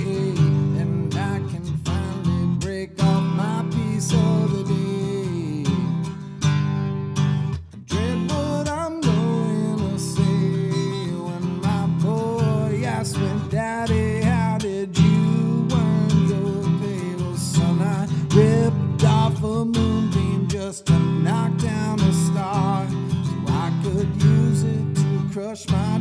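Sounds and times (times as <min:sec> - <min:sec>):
strummed acoustic guitar: 0:00.0 - 0:26.0.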